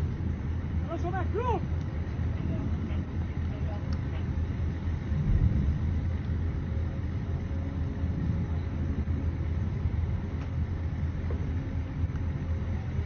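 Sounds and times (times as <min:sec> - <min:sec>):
engine rumbling: 0:00.0 - 0:13.0
faint steady hum: 0:00.0 - 0:13.0.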